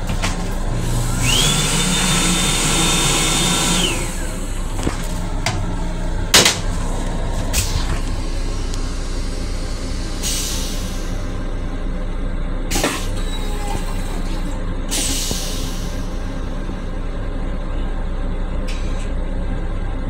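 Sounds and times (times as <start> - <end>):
high motor whine: 0.0 - 12.3
railcar low rumble: 0.0 - 20.0
rushing air: 0.8 - 11.4.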